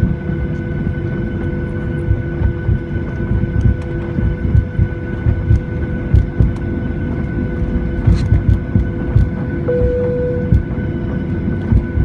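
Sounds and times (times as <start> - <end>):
jet engines humming and whining: 0.0 - 12.0
low cabin rumble: 0.0 - 12.0
low thumps of rolling airliner: 0.0 - 12.0.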